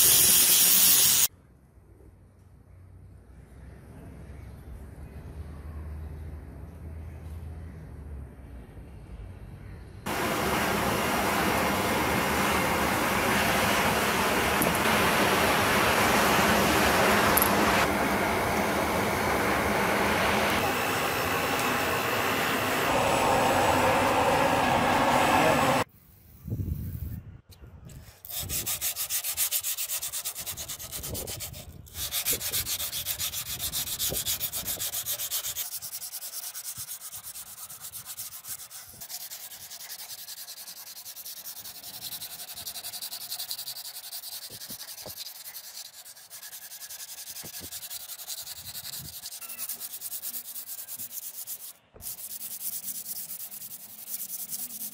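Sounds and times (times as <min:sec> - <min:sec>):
sandpaper rasping on steel: 0:00.0 - 0:01.3, 0:27.9 - 0:54.9
forge fire rushing: 0:10.1 - 0:25.8.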